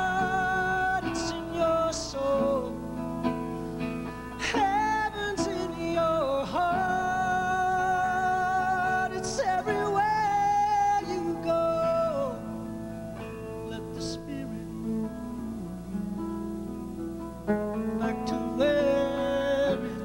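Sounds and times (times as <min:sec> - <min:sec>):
acoustic guitar: 0:00.0 - 0:20.0
man singing held notes: 0:13.6 - 0:16.1, 0:18.0 - 0:20.0.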